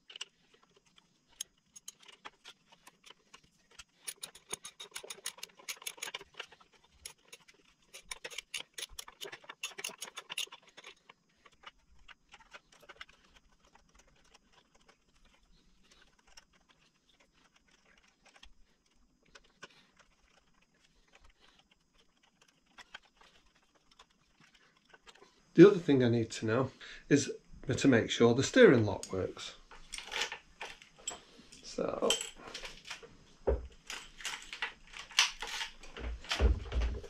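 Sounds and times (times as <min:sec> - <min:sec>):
tool handling clicks: 0:00.0 - 0:13.2
ratcheting hand tool clicking: 0:00.0 - 0:25.2.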